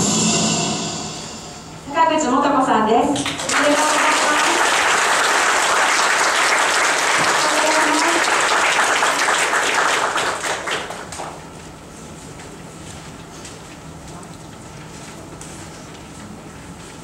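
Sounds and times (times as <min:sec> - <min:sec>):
audience applauding: 0:03.2 - 0:11.4.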